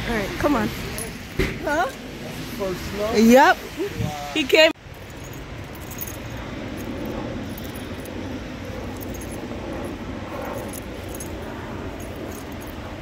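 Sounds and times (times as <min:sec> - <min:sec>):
collar metal jingling: 0:04.8 - 0:13.0.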